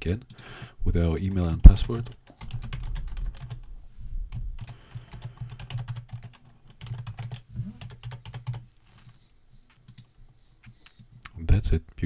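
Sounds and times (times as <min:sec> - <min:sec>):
typing on computer keyboard: 0:01.7 - 0:03.7, 0:04.6 - 0:08.6, 0:09.8 - 0:10.1.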